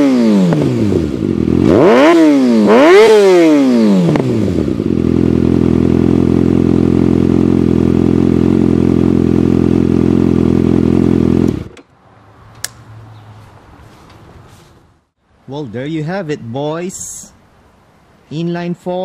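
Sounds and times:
motorcycle engine revving and idling: 0.0 - 11.8.

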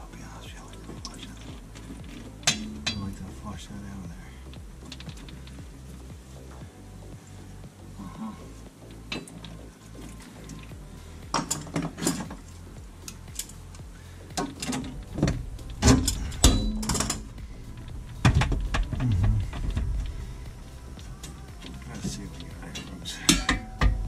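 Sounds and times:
background music: 0.0 - 24.0
metallic clicks and clatter: 11.3 - 20.6.

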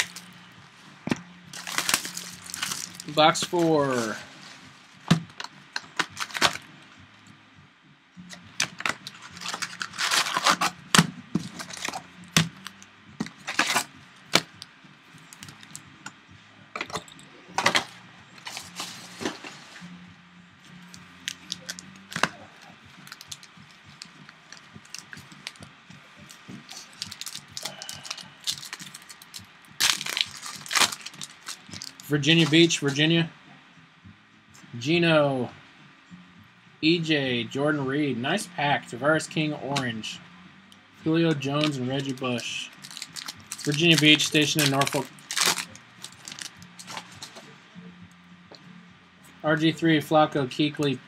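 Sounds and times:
foil card packs tearing: 1.5 - 4.2, 5.4 - 6.6, 8.6 - 14.6, 21.2 - 25.6, 26.7 - 32.7, 41.6 - 47.3.

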